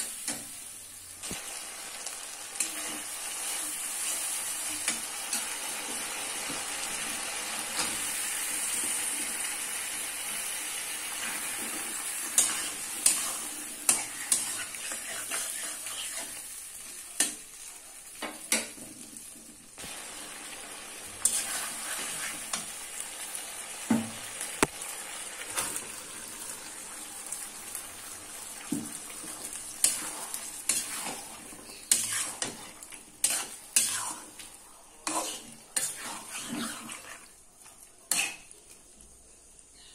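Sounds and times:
paste sizzling in oil: 0.0 - 39.8
spatula scraping and knocking pan: 28.6 - 34.2.

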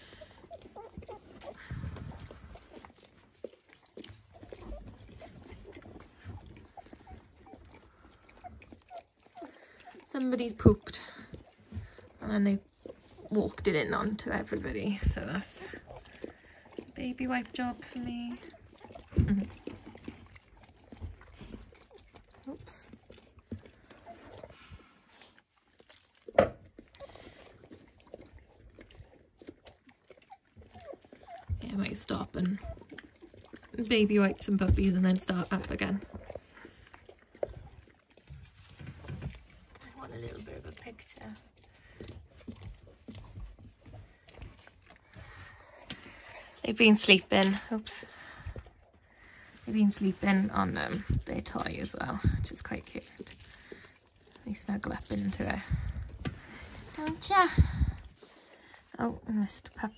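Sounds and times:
puppies squeaking and grunting: 0.0 - 10.1, 26.7 - 31.6
small knocks and rustles: 38.3 - 39.9.

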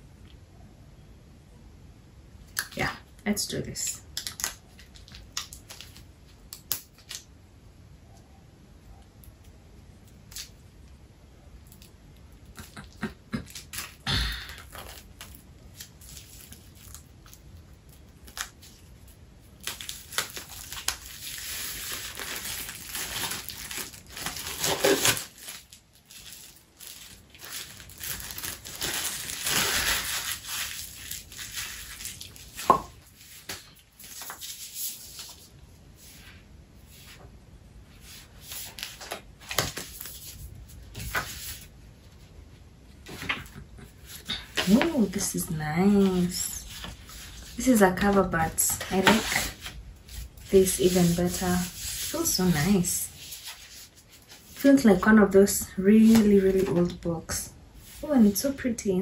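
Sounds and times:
plastic wrap crinkling: 13.5 - 35.5.

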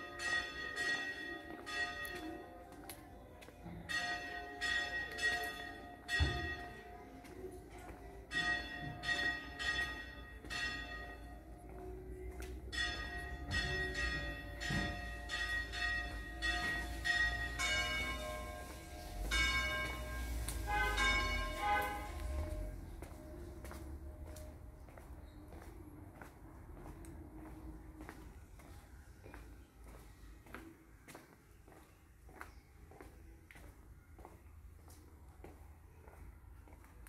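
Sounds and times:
church bells ringing: 0.0 - 2.6, 3.9 - 7.0, 8.3 - 11.6, 12.4 - 24.6.

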